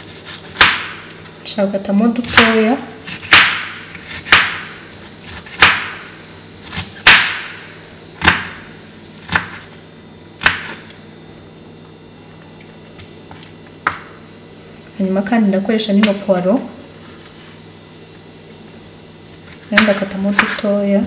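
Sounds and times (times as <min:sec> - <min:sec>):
knife chopping on wooden board: 0:00.2 - 0:01.1, 0:02.2 - 0:06.1, 0:06.7 - 0:08.6, 0:09.2 - 0:09.7, 0:10.4 - 0:10.8, 0:19.5 - 0:20.7.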